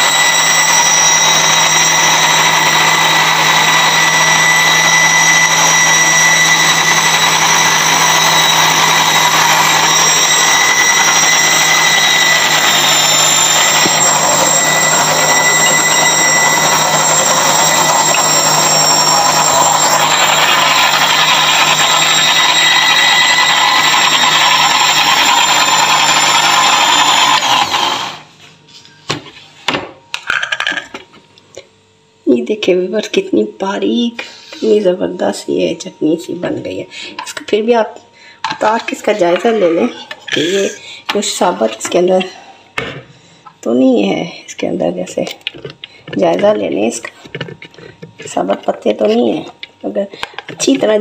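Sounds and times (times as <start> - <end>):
blender motor running: 0.0 - 28.3, 38.4 - 42.0.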